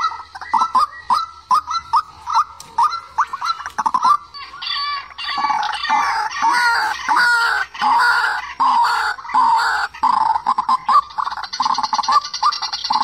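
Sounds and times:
waterhen short repeated calls: 0.0 - 13.0.

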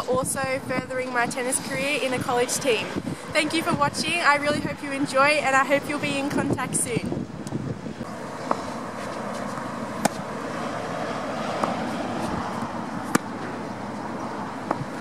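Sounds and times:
tennis balls struck by racquets: 8.4 - 15.0.

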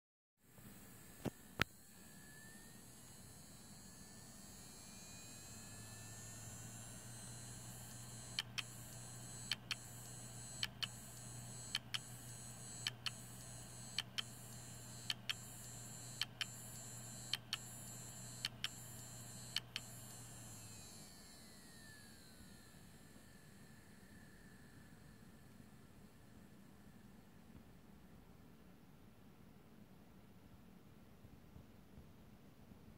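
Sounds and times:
hard drive spinning with whine: 0.6 - 27.6
hard drive heads clicking: 8.0 - 20.2.

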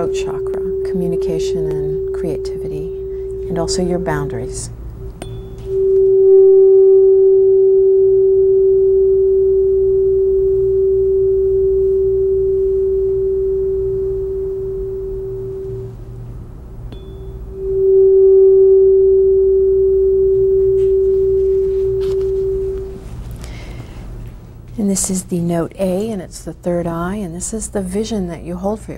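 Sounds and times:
tuning fork ringing: 0.0 - 16.2, 16.9 - 23.8.

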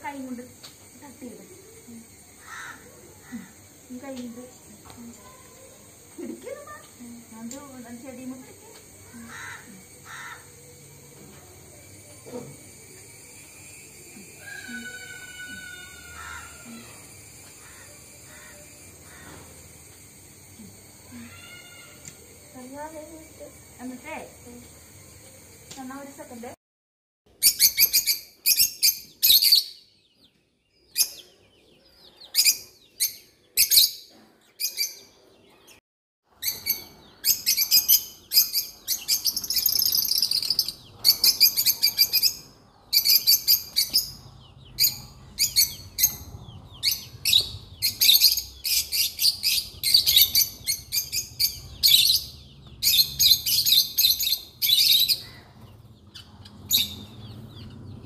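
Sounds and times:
small birds chirping: 0.0 - 26.6, 27.3 - 58.0.

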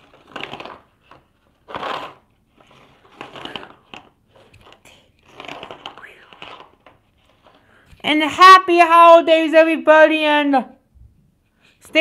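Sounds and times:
rustling and crinkling: 0.0 - 8.1.

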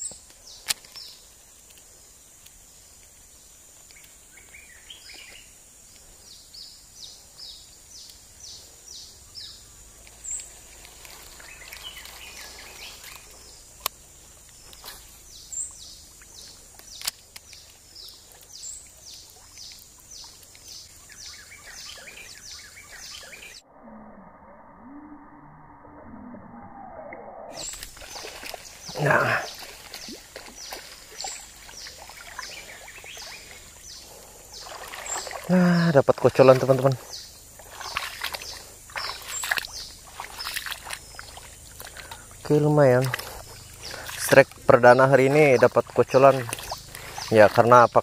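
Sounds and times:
high insect drone: 0.0 - 23.6, 27.4 - 48.0
scattered bird chirps: 6.2 - 13.8, 14.6 - 48.0
sharp clicks: 16.7 - 17.7.

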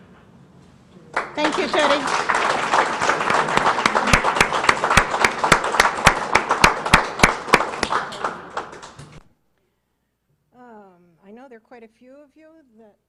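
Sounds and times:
audience applauding: 1.1 - 9.2
person clapping close to microphone: 1.2 - 9.2.

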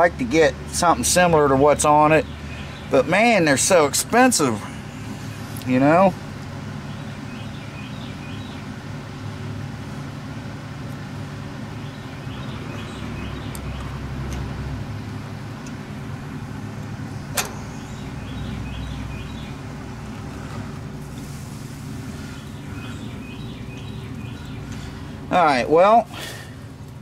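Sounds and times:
sharp click: 17.3 - 17.6.

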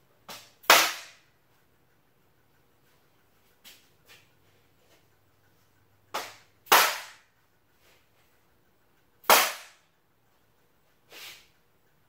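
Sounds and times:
rubber mallet striking metal: 6.1 - 7.3.

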